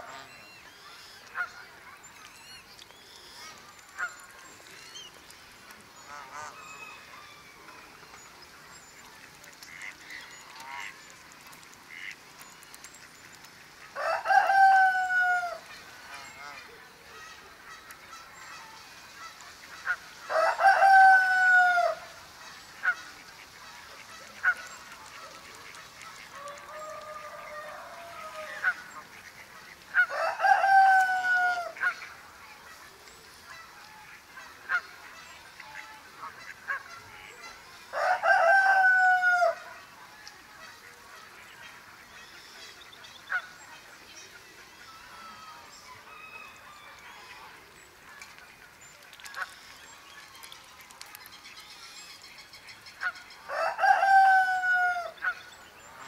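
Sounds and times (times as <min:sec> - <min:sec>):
fowl long calls: 0:13.8 - 0:16.8, 0:19.2 - 0:24.6, 0:25.4 - 0:29.3, 0:29.9 - 0:32.1, 0:35.5 - 0:39.9, 0:53.0 - 0:55.5.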